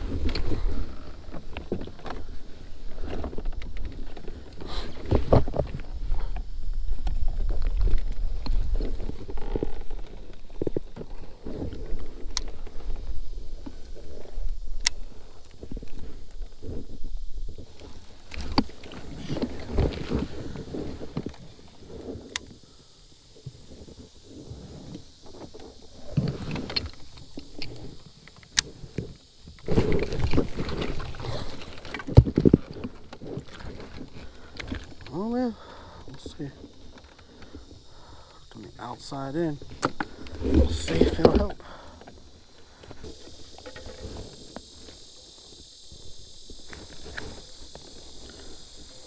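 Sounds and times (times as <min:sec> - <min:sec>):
insect chorus: 0:00.0 - 0:49.0.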